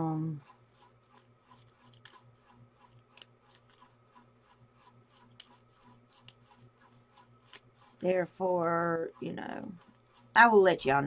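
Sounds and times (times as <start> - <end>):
soft regular ticking: 0.0 - 11.0
scissors snipping: 1.1 - 3.9.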